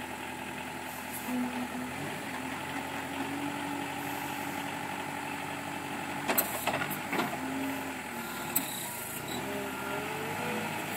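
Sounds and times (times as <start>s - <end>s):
forklift engine running: 0.0s - 10.9s.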